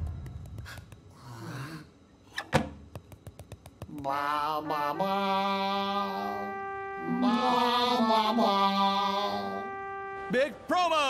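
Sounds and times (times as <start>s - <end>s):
voices humming in harmony: 4.0s - 11.0s.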